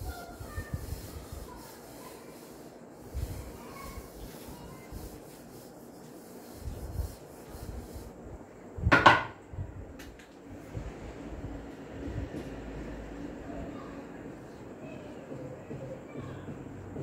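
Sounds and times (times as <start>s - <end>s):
duster rubbing whiteboard: 0.0s - 8.2s
objects clattering on wooden cabinet: 8.9s - 9.4s.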